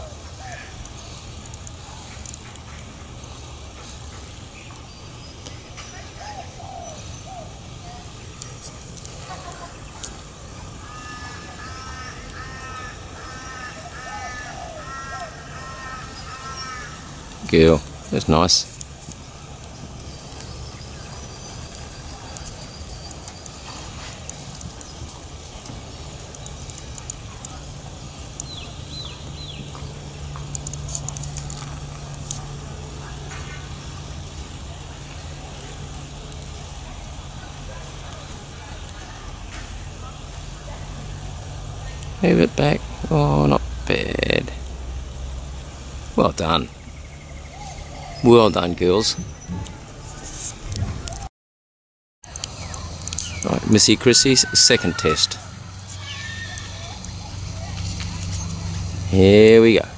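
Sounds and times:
faint bird calls: 0.0s - 8.4s, 9.0s - 31.2s, 52.4s - 59.8s
low outdoor rumble: 0.0s - 51.3s, 52.3s - 59.9s
vehicle engine hum: 0.0s - 51.3s, 52.2s - 59.9s
sharp clicks: 52.3s - 53.7s.

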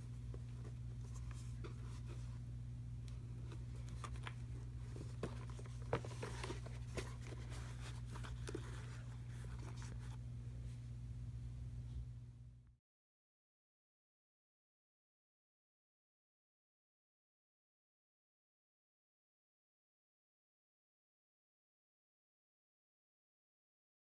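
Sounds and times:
steady low hum: 0.0s - 12.8s
boots handling rustles and clicks: 3.4s - 10.2s.

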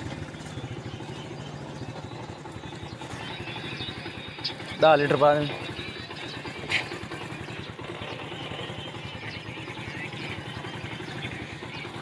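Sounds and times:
motorcycle engine idling: 0.0s - 12.0s.

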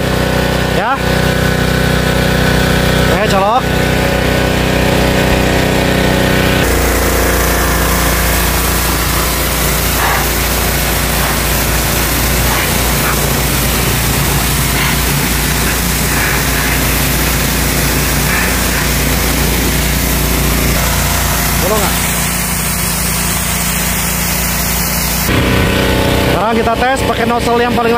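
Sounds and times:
pressure washer engine running: 0.0s - 27.9s
water spray hissing: 6.6s - 25.3s.

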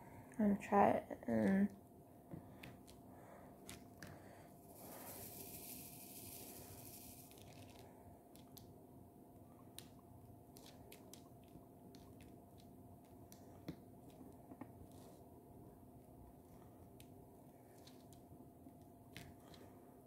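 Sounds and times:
low steady hum: 0.0s - 20.0s
soft hiss: 4.6s - 8.0s.

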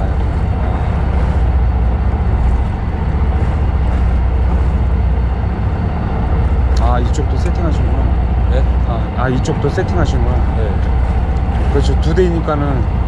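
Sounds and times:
boat engine rumbling: 0.0s - 13.0s
wash of noise: 0.0s - 13.0s.

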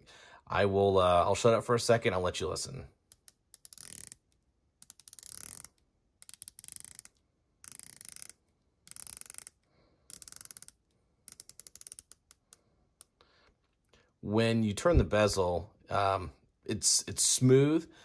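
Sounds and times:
watch bezel ratcheting clicks: 3.1s - 13.2s.

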